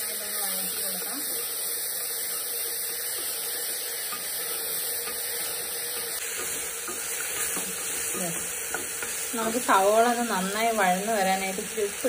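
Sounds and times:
onions sizzling in hot oil: 0:00.0 - 0:12.0
spatula scraping pot: 0:01.3 - 0:10.2.

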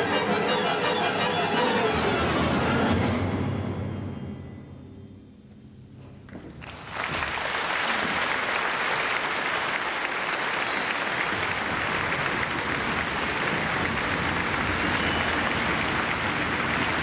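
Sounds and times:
orchestra low notes: 0:00.0 - 0:06.0
audience applause: 0:06.6 - 0:17.0.

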